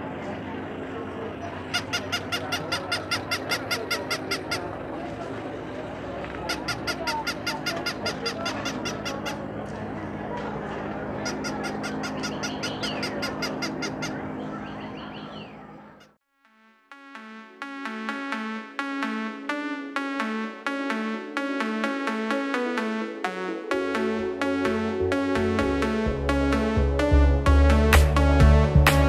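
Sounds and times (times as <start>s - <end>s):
steady low hum: 0.0s - 16.2s
electronic toy squeaky honks: 1.6s - 5.0s, 6.4s - 9.4s, 11.2s - 16.1s.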